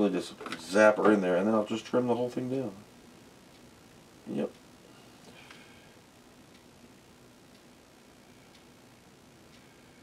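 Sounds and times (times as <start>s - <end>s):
faint ticking: 1.3s - 10.0s.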